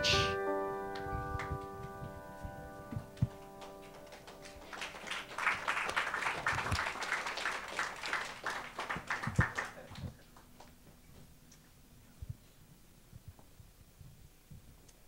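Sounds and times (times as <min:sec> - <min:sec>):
keyboard chord: 0:00.0 - 0:05.1
congregation applauding: 0:03.0 - 0:10.7.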